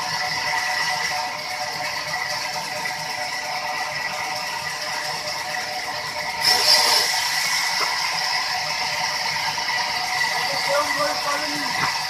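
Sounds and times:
band saw whining: 0.0 - 12.0
saw blade rasping through log: 6.4 - 12.0.

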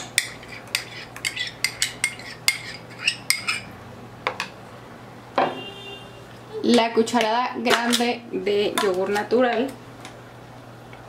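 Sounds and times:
metal spoon scraping glass jar: 0.4 - 3.7.

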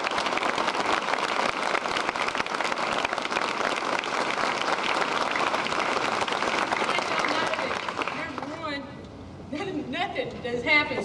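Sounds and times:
crowd applauding: 0.0 - 8.6.

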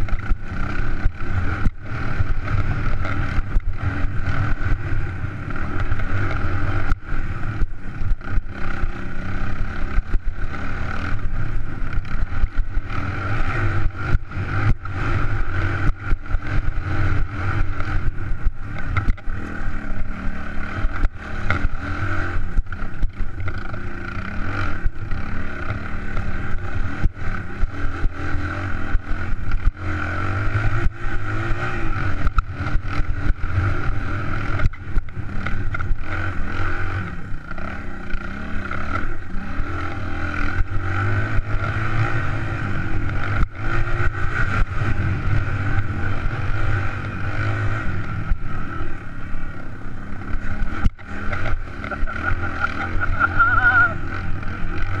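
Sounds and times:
dirt bike engine running: 0.0 - 55.0
bike knocking and rattling: 15.8 - 19.6.

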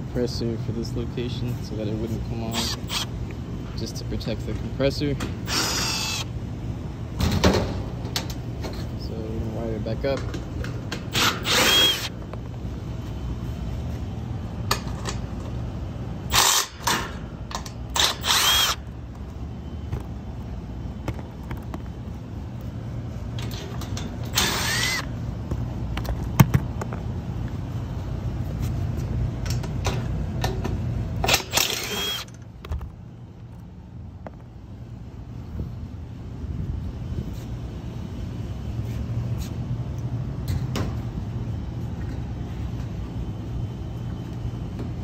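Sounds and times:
impact driver running screws: 2.5 - 3.1, 5.5 - 6.3, 11.1 - 12.1, 16.3 - 16.8, 18.0 - 18.8, 24.3 - 25.1, 31.2 - 32.3.

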